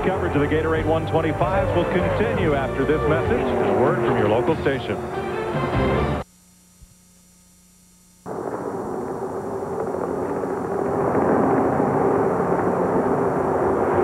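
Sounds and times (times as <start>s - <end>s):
engine rushing noise: 0.0s - 6.2s
faint hum: 0.0s - 14.0s.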